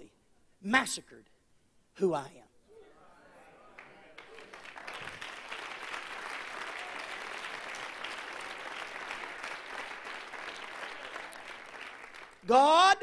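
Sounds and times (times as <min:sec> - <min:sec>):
congregation applauding: 0:03.6 - 0:13.0.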